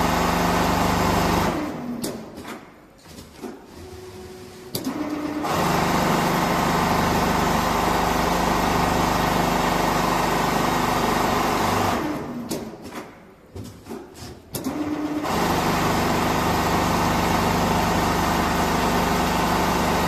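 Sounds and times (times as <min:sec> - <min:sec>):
sewing machine stitching: 0:03.4 - 0:12.5, 0:14.6 - 0:20.0.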